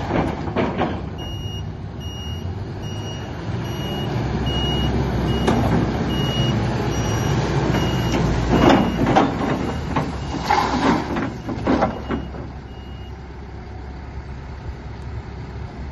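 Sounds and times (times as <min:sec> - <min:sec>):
forklift engine running: 0:00.0 - 0:15.9
travel alarm beeping: 0:01.2 - 0:09.1, 0:11.9 - 0:13.1.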